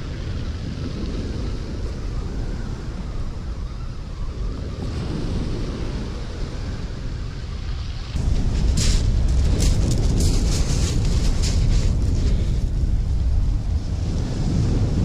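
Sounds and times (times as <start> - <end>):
wind buffeting microphone: 0.0 - 15.0
small waves on shingle beach: 4.8 - 15.0.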